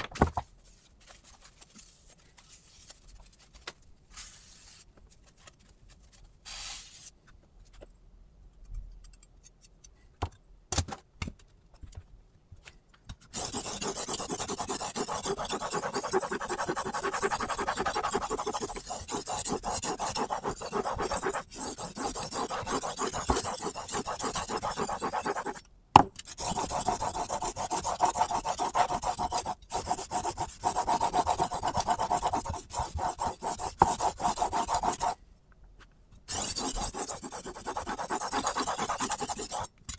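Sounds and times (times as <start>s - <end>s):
knife scraping on sharpening stone: 13.4s - 25.6s.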